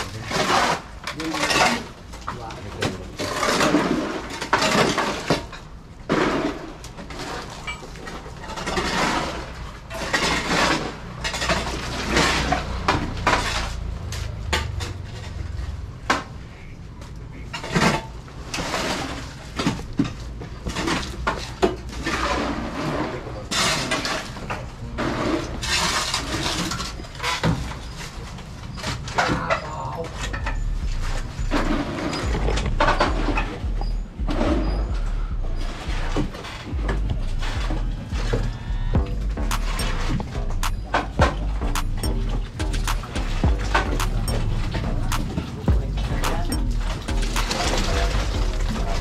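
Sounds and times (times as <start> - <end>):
tools scraping gravel and cement: 0.0 - 16.7, 17.4 - 34.0, 39.4 - 49.0
steady low hum: 30.2 - 49.0.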